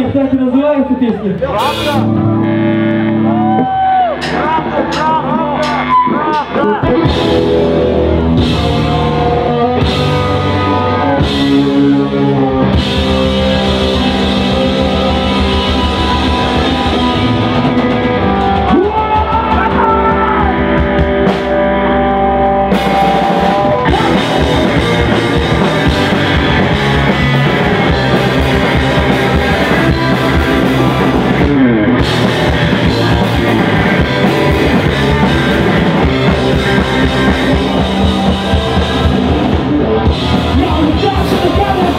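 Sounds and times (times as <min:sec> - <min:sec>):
rock band playing live: 0:00.0 - 0:41.9
vocalist singing: 0:04.2 - 0:20.7, 0:23.7 - 0:26.5.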